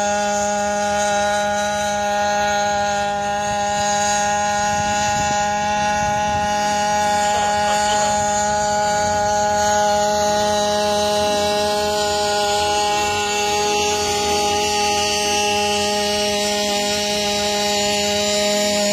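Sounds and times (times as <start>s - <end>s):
quadcopter humming: 0.0s - 18.9s.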